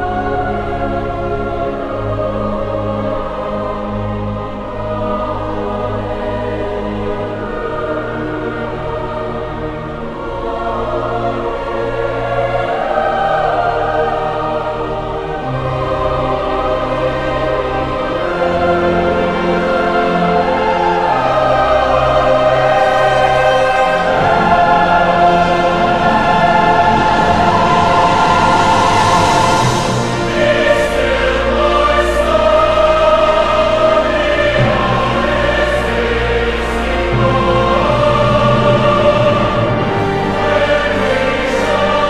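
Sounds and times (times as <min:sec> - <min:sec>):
choir singing sustained chords: 0:00.0 - 0:42.0.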